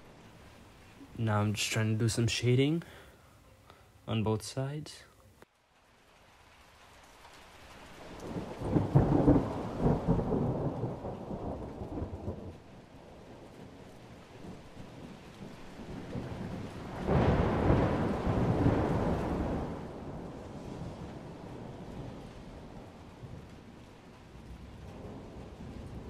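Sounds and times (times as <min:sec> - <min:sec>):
steady hiss: 0:00.0 - 0:10.2
low storm-like rumbling: 0:08.2 - 0:26.0.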